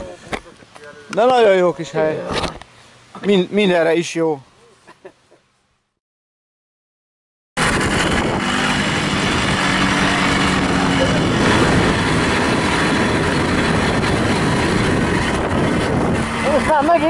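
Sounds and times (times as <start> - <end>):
moped engine running: 7.6 - 17.0
wind noise on microphone: 7.6 - 17.0.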